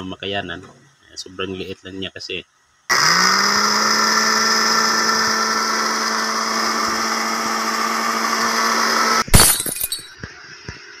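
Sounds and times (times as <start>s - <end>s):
blender motor running: 2.9s - 9.2s.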